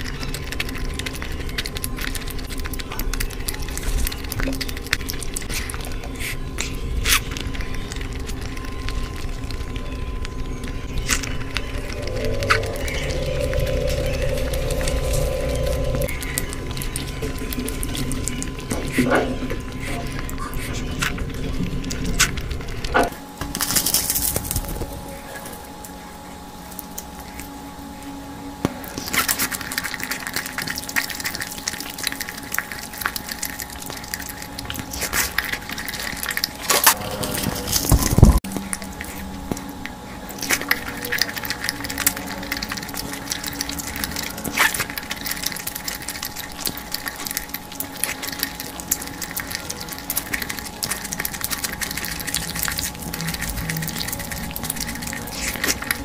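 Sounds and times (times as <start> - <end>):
wet chewing and lip smacking: 0.0 - 23.0, 28.7 - 56.0
fingers squelching in sauce: 40.3 - 56.0.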